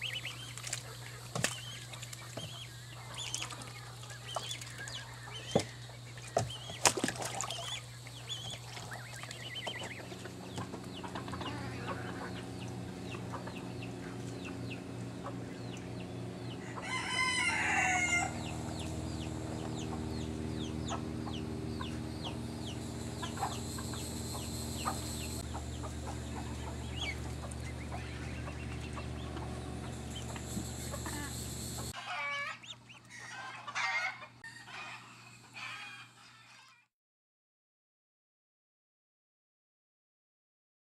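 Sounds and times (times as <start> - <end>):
steady low hum: 0.0 - 32.0
chickens clucking: 0.0 - 36.7
rooster crowing: 16.4 - 18.8, 30.8 - 36.8.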